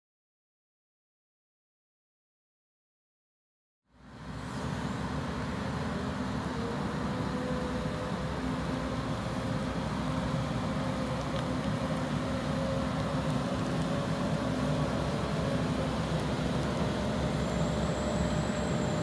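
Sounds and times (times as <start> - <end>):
diesel engine idling: 4.0 - 19.0
faint high whine: 13.9 - 19.0.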